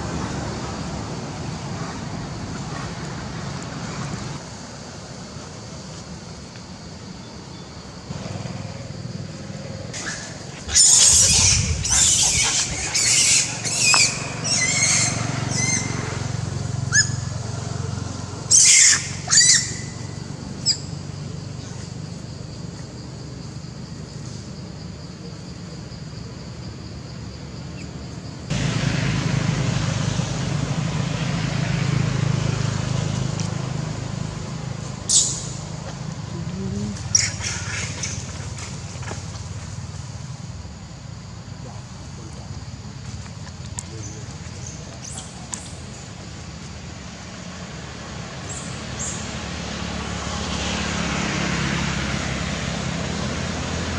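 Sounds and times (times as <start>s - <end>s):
macaques screaming: 9.9s - 17.4s, 18.4s - 20.8s, 36.8s - 38.6s
low rumble: 10.7s - 14.4s.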